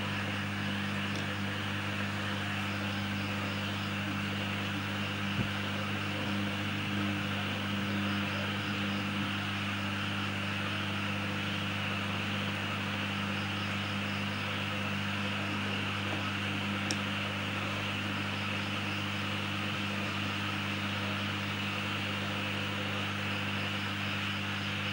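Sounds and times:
electrical hum: 0:00.0 - 0:24.9
small click: 0:16.8 - 0:17.1.

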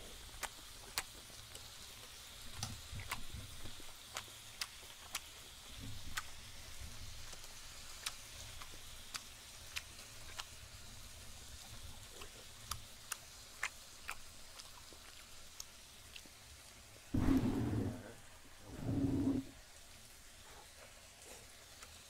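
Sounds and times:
close chewing with mouth clicks: 0:00.0 - 0:17.1, 0:18.6 - 0:22.0
faint pan sizzle: 0:00.0 - 0:22.0
soft low thumps: 0:17.2 - 0:19.5.

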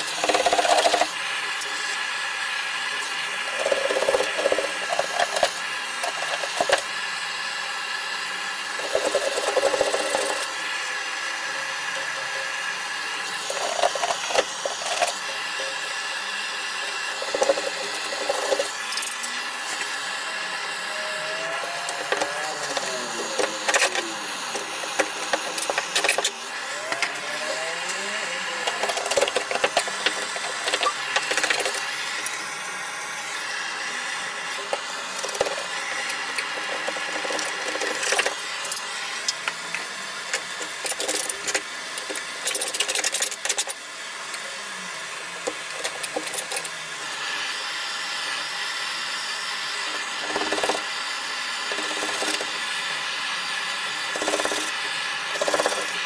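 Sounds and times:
blowtorch hissing: 0:00.0 - 0:42.5
hand scraper scraping: 0:54.1 - 0:56.0.

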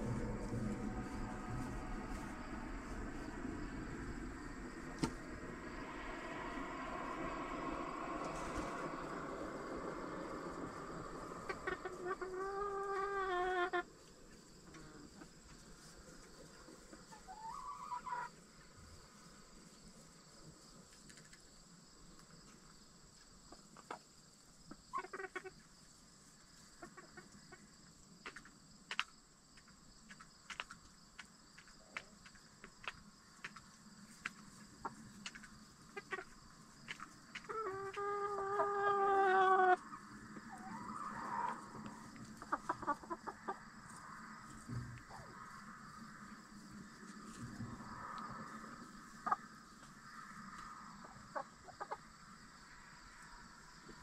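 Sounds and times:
chicken long drawn-out call: 0:00.0 - 0:14.0, 0:16.9 - 0:18.4, 0:24.9 - 0:25.6, 0:35.9 - 0:36.4, 0:37.4 - 0:45.9, 0:50.3 - 0:52.1
chickens clucking softly: 0:06.8 - 0:18.4, 0:23.5 - 0:25.8, 0:26.6 - 0:29.0, 0:30.1 - 0:46.0, 0:46.6 - 0:54.0
short rising chicken call: 0:40.5 - 0:43.4.

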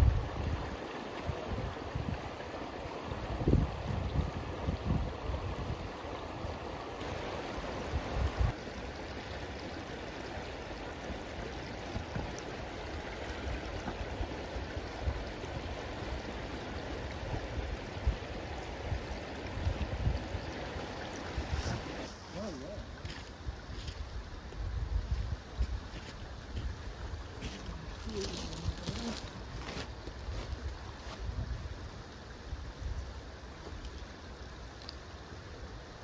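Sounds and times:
river water rushing: 0:00.0 - 0:23.5
wind buffeting microphone: 0:03.2 - 0:05.9.

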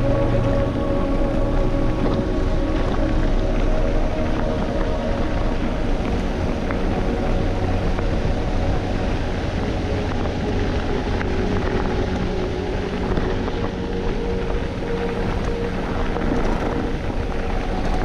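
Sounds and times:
bike tyres on gravel: 0:00.0 - 0:18.0
wind on microphone: 0:00.0 - 0:18.0.

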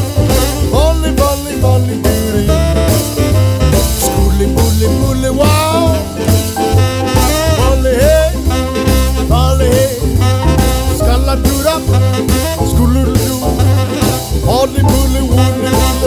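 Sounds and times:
song with bass and drum beat: 0:00.0 - 0:16.0.

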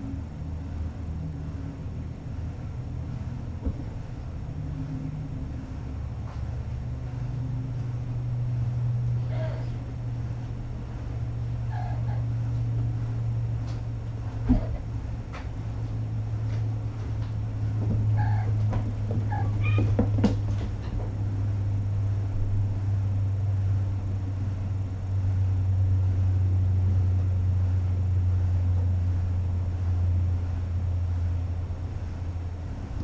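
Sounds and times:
steady low hum: 0:00.0 - 0:33.0
paws knocking on floor: 0:16.5 - 0:21.2
cat meowing: 0:19.3 - 0:20.0.

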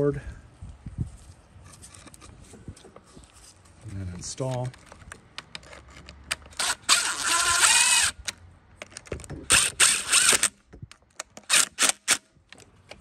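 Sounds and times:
cordless driver spinning: 0:05.6 - 0:08.3, 0:09.5 - 0:10.6.

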